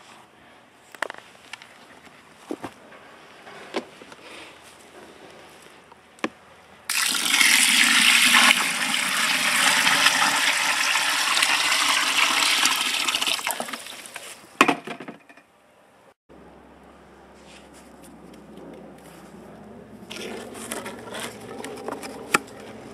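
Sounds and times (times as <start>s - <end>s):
water pouring into soil: 6.9s - 14.2s.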